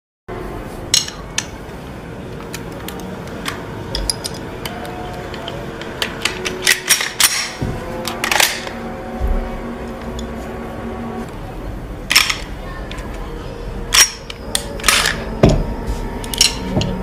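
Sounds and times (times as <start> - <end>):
low steady hum: 0.3 - 17.0
metal pistol parts clacking: 0.9 - 1.6, 2.4 - 8.8, 12.1 - 13.0, 13.9 - 15.6, 16.2 - 17.0.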